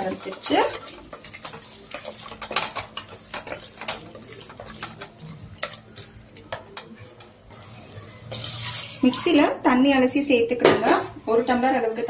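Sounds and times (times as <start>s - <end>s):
spoon scraping a pot: 0.0s - 9.5s
chicken sizzling in oil: 7.5s - 9.6s.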